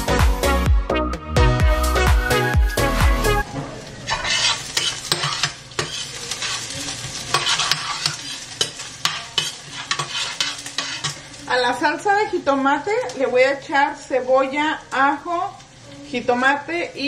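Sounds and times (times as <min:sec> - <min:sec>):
electronic dance music: 0:00.0 - 0:03.4
food sizzling in a pan: 0:03.4 - 0:17.0
spatula scraping a pan: 0:04.0 - 0:11.4.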